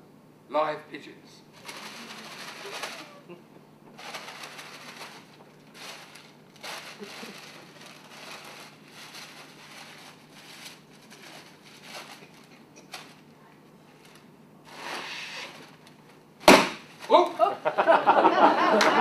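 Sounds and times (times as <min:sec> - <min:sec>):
paper bag crumpling: 0:01.5 - 0:03.3, 0:03.9 - 0:13.3.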